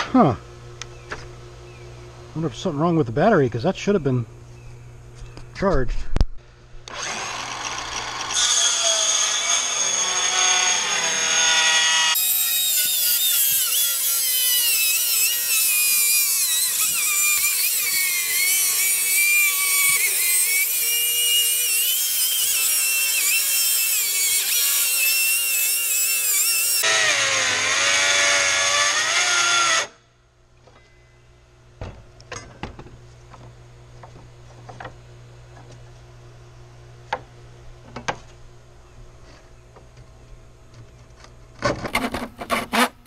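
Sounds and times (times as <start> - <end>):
circular saw cutting wood: 6.9 - 30.0, 41.9 - 43.0.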